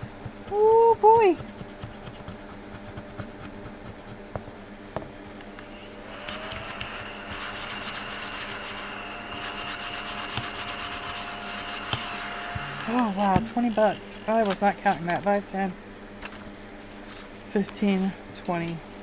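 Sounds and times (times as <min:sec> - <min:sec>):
tool scratching card coating: 0:00.0 - 0:04.3, 0:05.6 - 0:15.2
small vacuum whine: 0:04.2 - 0:19.0.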